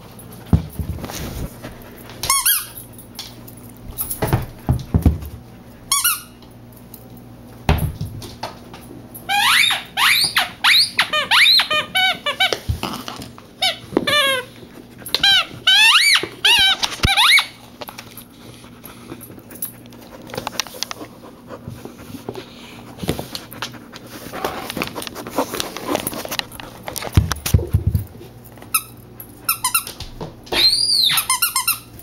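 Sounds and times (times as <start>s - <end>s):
squeaky toy squeaks: 9.3s - 12.5s, 13.6s - 14.5s, 15.2s - 17.6s, 30.6s - 31.9s.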